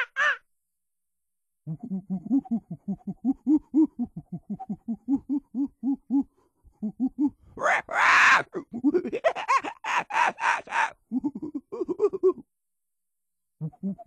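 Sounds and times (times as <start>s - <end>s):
monkey hooting: 0.0s - 0.4s, 1.7s - 11.6s
monkey screaming: 0.0s - 0.4s, 7.6s - 8.6s, 9.4s - 10.9s.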